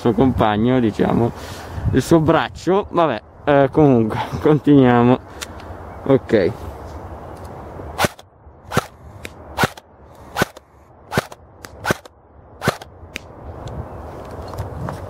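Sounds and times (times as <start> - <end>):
airsoft rifle shots: 8.0 - 9.0, 9.6 - 12.9.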